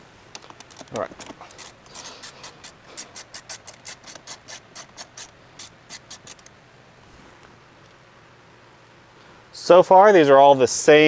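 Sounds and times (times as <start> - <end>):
hand ratchet clicking: 0.6 - 6.5.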